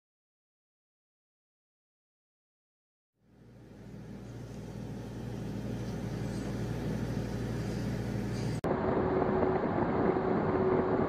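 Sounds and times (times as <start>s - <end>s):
steady low hum: 3.2s - 11.0s.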